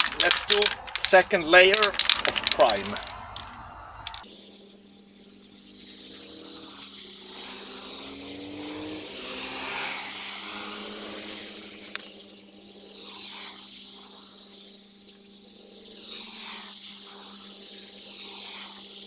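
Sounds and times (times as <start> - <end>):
aerosol spray can hissing: 4.1 - 19.0.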